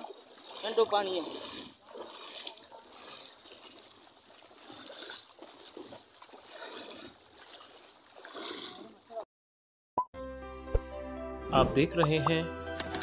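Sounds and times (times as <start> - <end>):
water sloshing from wading: 0.0 - 9.2.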